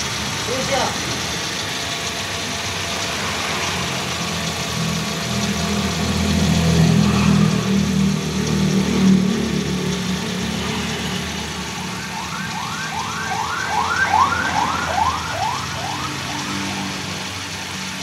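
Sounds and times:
car engine idling: 0.0s - 18.0s
car alarm rising whoops: 11.8s - 16.9s.

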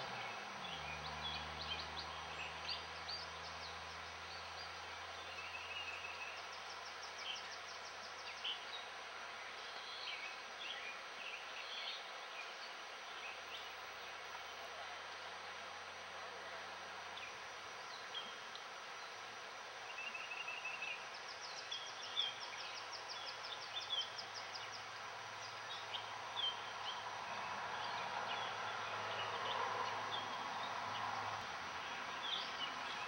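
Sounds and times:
river water rushing: 0.0s - 33.0s.

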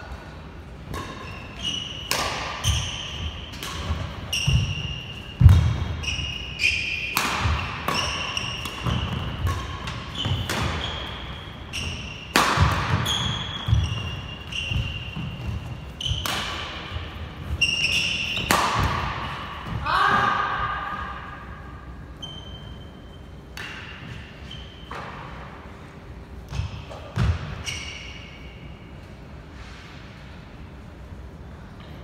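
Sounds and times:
racket striking shuttlecock: 2.0s - 6.0s, 7.1s - 11.0s, 11.8s - 15.3s, 16.0s - 17.0s, 18.2s - 19.4s
shoes squeaking on wooden floor: 13.0s - 16.2s.

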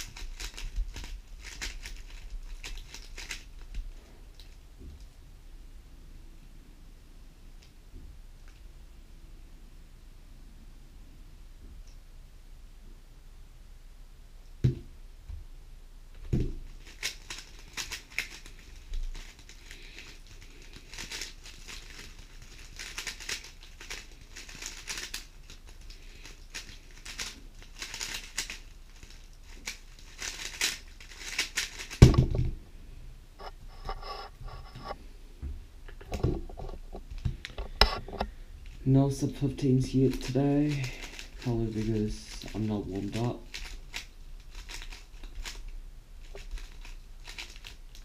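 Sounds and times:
heavy thump: 32.0s - 32.6s.

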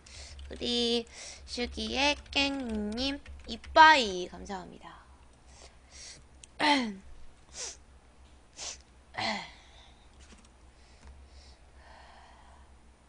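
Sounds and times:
woman sighing: 9.2s - 9.9s.

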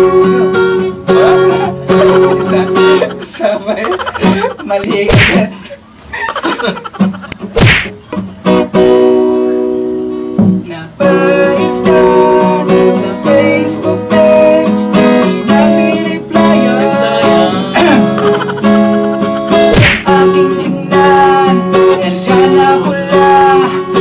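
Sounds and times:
man singing: 0.0s - 5.5s, 11.0s - 18.5s, 19.4s - 24.0s
acoustic guitar strumming: 0.0s - 5.6s, 6.6s - 24.0s
laughter: 1.3s - 7.6s, 18.1s - 19.7s.

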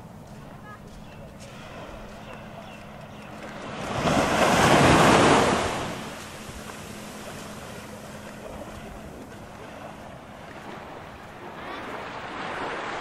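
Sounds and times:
quiet wash of surf: 0.0s - 13.0s
sea wave breaking on beach: 3.7s - 8.0s.

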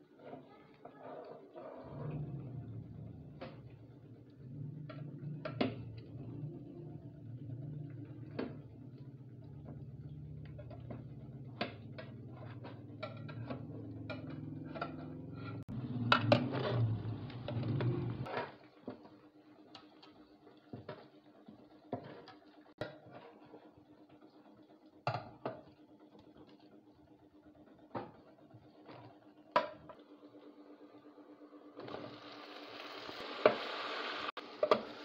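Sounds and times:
metal utensils scraping pots: 12.0s - 18.5s.

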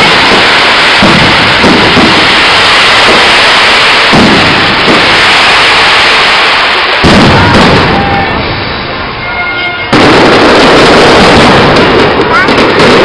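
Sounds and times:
fireworks crackling and rumbling: 0.0s - 13.0s
heavy firework bang: 0.0s - 13.0s.

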